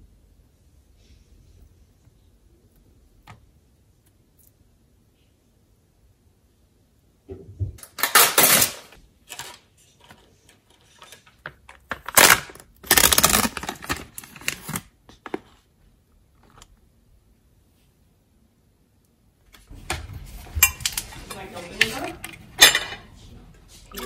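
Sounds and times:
plastic packaging crinkling: 10.8 - 15.0.

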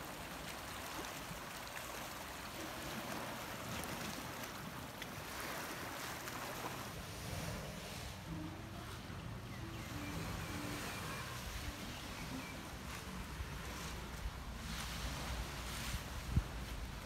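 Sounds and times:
small waves lapping on rocks: 0.0 - 17.0
low steady rumble: 6.8 - 17.0.

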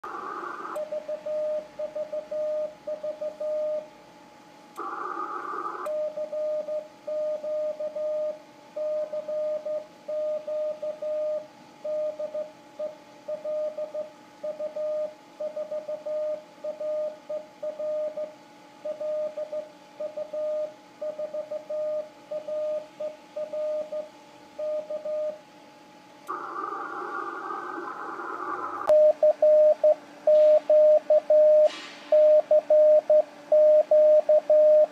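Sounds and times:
radio hiss: 0.0 - 0.8, 4.8 - 5.9, 26.3 - 29.0
morse code tone: 28.9 - 34.9.

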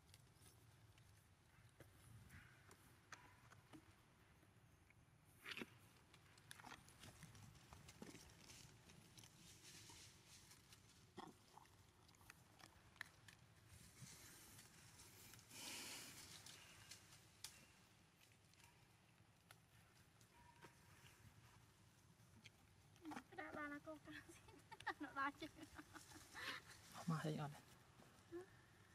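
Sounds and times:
rustling: 5.7 - 11.2, 13.0 - 24.8, 25.4 - 28.7.

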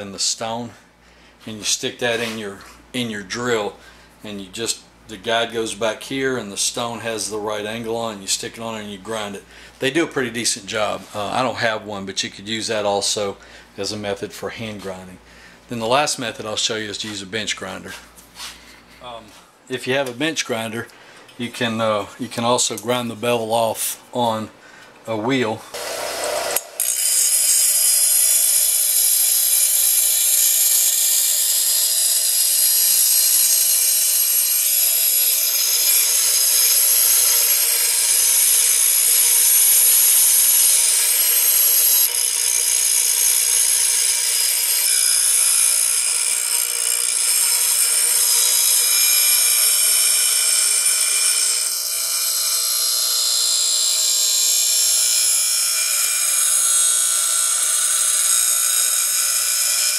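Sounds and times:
bench grinder grinding metal blade: 25.8 - 59.9.

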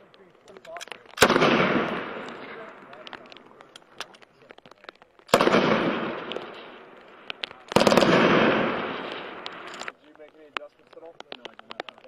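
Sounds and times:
gunfire echo: 1.1 - 3.6, 5.3 - 9.9
machine gun fire bursts: 1.2 - 2.6, 5.3 - 9.9.

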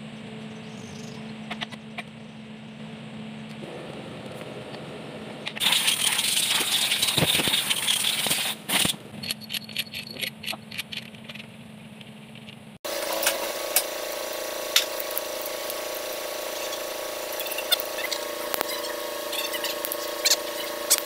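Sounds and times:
low steady hum: 0.0 - 7.4.

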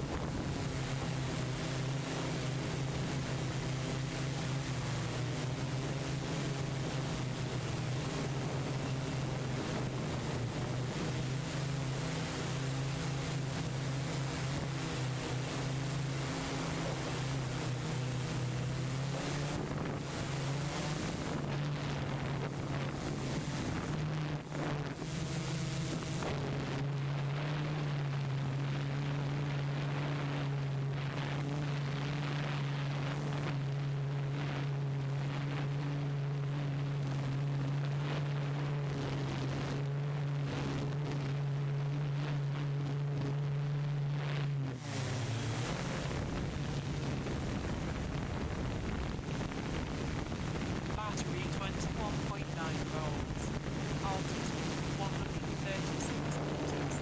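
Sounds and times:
wind on microphone: 0.0 - 35.5, 44.6 - 57.0
low mechanical hum: 0.0 - 57.0.

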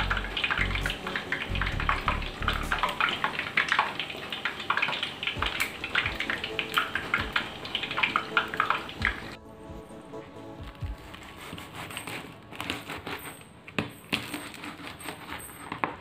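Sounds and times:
food deep-frying in hot oil: 0.0 - 9.4.

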